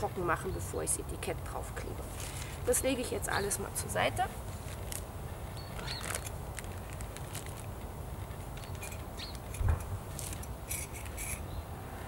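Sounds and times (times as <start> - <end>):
bird chirps: 5.5 - 6.3, 8.6 - 9.6
gear rustling and clicking: 5.7 - 11.4.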